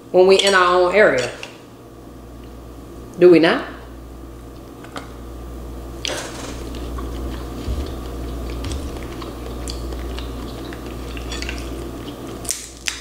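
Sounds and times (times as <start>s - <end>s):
steady low hum: 0.0s - 13.0s
crab shell cracking: 6.1s - 13.0s.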